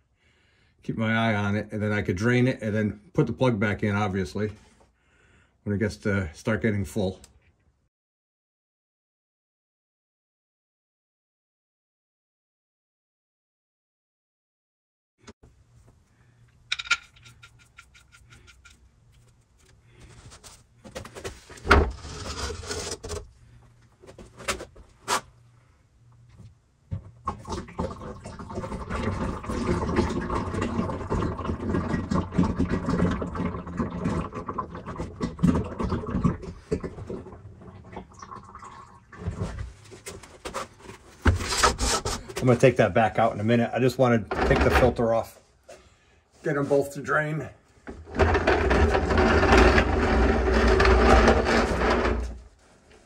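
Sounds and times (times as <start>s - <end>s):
metallic clicks and knocks: 16.7s - 19.3s
oil pouring into drain pan: 27.3s - 39.5s.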